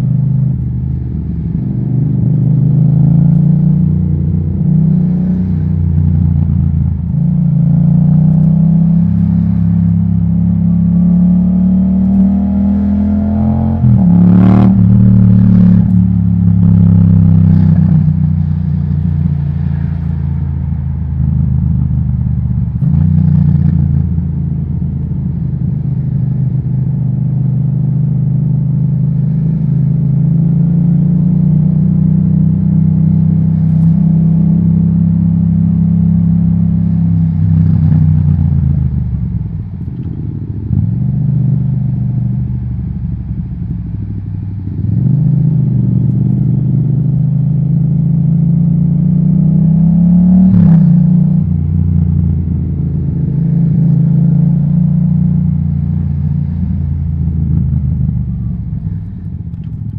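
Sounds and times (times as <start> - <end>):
motorcycle engine revving: 0.0 - 43.3
exhaust crack: 55.0 - 59.9.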